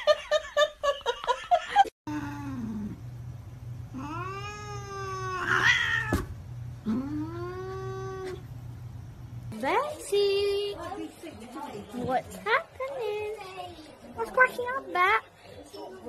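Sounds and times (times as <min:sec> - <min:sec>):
cat yowling: 0:03.9 - 0:08.5.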